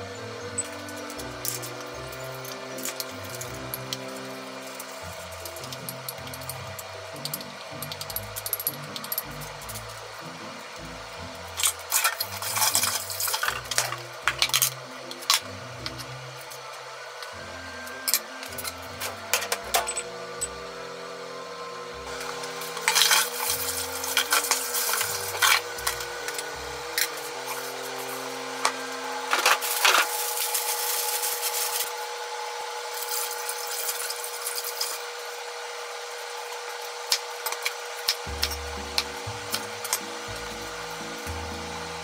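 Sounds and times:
kitchen clatter: 11.6 - 16.0, 22.2 - 32.0.

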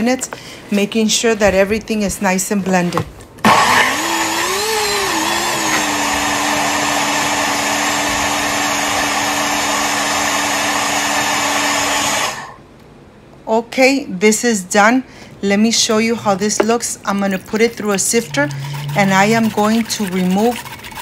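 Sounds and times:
blender motor running: 3.4 - 12.6, 17.8 - 21.0.

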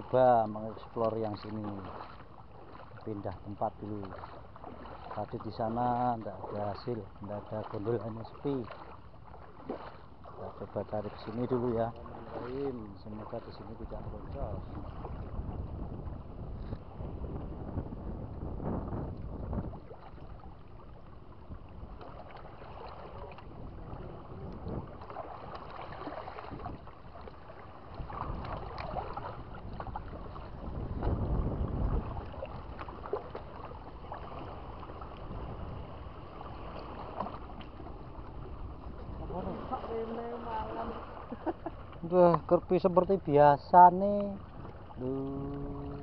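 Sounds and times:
wind rumbling on microphone: 0.0 - 46.0
small waves washing against rocks: 21.7 - 42.4.

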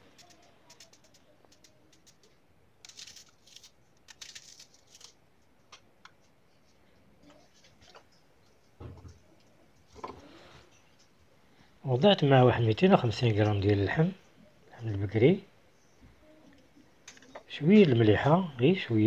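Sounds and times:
onion crackling and pattering: 0.0 - 8.8.

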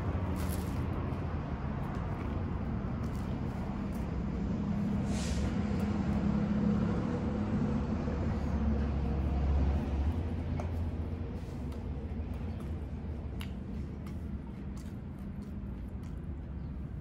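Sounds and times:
large vehicle engine rumble: 0.0 - 17.0.

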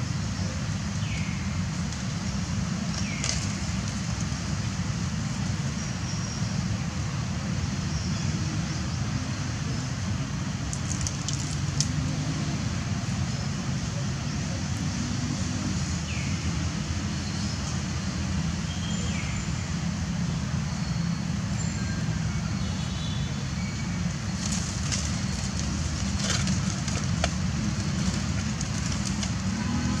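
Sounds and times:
low outdoor rumble: 23.3 - 30.0.

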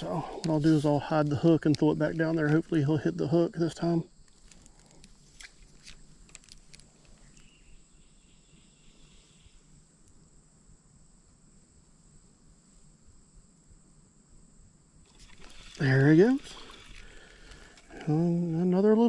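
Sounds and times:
insects buzzing high-pitched: 0.0 - 19.0.

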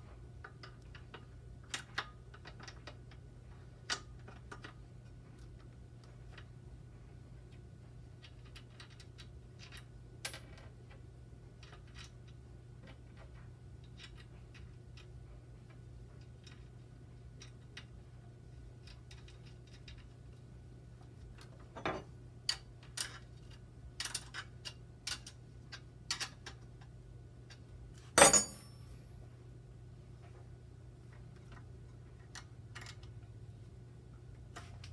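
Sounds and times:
small metal clicks and ticks: 0.4 - 3.2, 7.4 - 11.0, 11.6 - 18.0, 18.7 - 20.4, 22.4 - 27.7, 31.1 - 33.2
metal clatter: 28.2 - 28.8.

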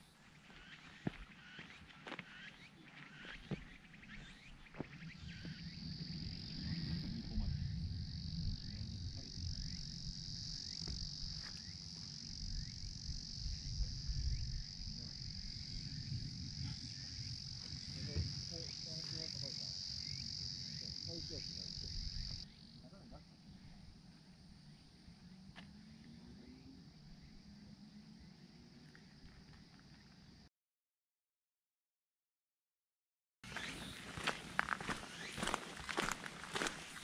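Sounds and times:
insects droning: 0.0 - 30.5, 33.4 - 37.0
low rumble: 5.5 - 11.4.

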